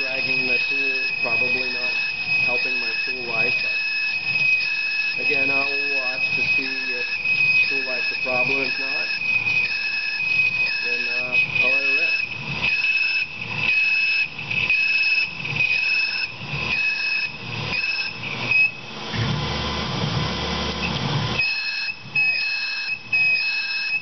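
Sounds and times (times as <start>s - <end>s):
drill squealing into steel: 0.0s - 19.6s, 20.7s - 24.0s.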